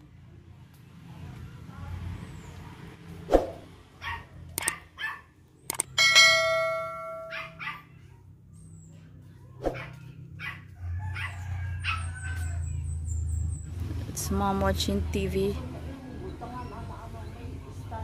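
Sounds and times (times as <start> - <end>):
dog barking: 4.0 - 5.3, 7.2 - 8.2, 9.7 - 12.6
mouse click: 4.6 - 4.8, 5.7 - 5.9
bell chime: 6.0 - 7.4.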